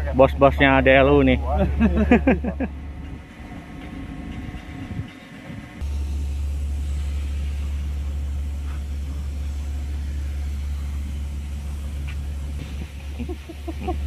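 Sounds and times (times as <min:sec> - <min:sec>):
ship diesel engine rumbling: 0:00.0 - 0:14.0.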